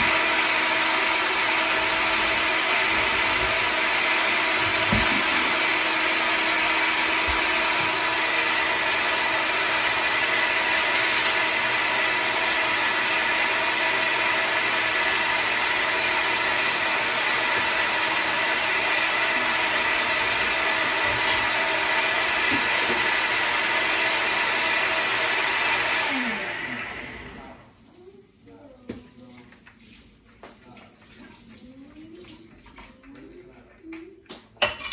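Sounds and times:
blender motor running: 0.0s - 27.6s.

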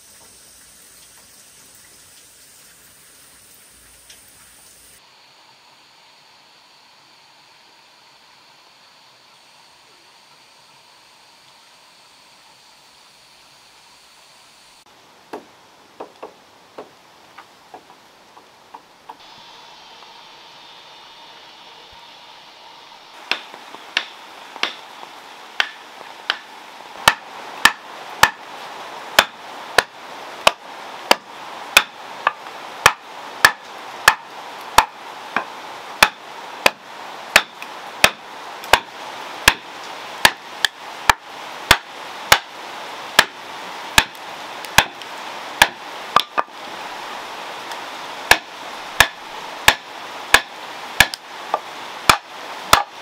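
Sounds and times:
hand hammer striking: 23.3s - 24.8s, 25.6s - 28.4s, 29.2s - 32.0s, 32.8s - 34.2s, 34.8s - 39.6s, 40.2s - 42.5s, 43.2s - 43.4s, 44.0s - 44.2s, 44.8s - 45.0s, 48.3s - 51.2s, 52.1s - 52.9s.

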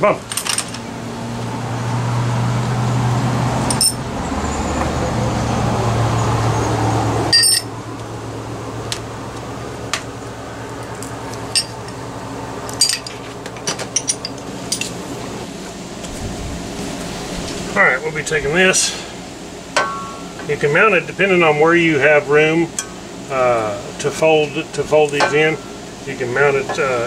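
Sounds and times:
steady low hum: 0.0s - 27.0s
metal parts clinking: 0.3s - 0.9s, 3.7s - 4.0s, 7.3s - 7.7s, 11.0s - 12.0s, 12.7s - 15.0s.

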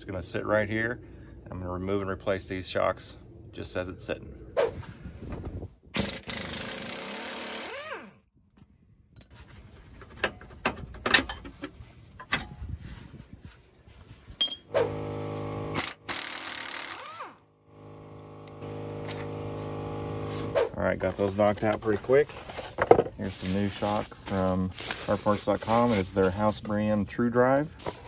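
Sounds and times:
pneumatic impact wrench: 5.9s - 8.2s, 14.7s - 20.8s.

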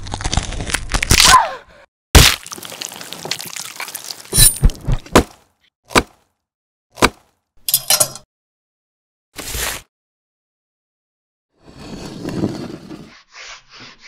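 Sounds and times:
crackly crunch: 0.0s - 1.4s, 2.2s - 6.3s.

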